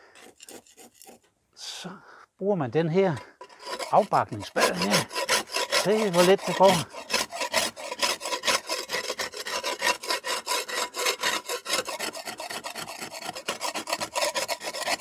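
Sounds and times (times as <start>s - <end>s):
spade rasping lime off wall: 3.0s - 15.0s.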